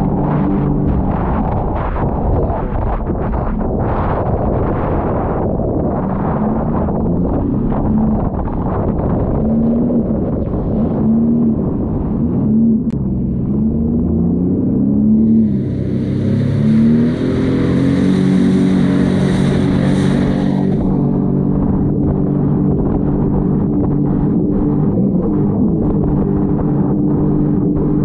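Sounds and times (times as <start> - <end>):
jet ski engine revving: 7.7 - 28.0.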